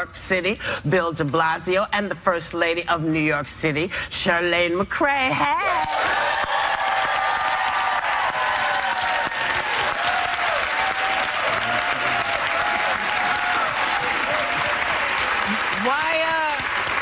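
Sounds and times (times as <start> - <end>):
people cheering: 5.6 - 17.0
audience applauding: 5.8 - 17.0.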